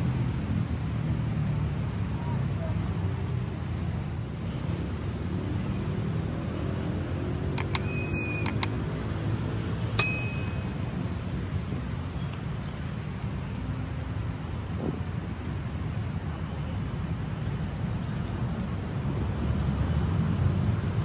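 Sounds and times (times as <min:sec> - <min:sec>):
city traffic rumble: 0:00.0 - 0:21.0
sharp metallic clicks: 0:07.5 - 0:08.8
bright ringing ding: 0:10.0 - 0:10.9.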